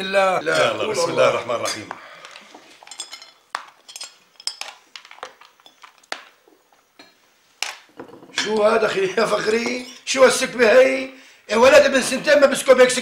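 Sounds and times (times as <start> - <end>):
cutlery clinking on plates: 2.7 - 6.3.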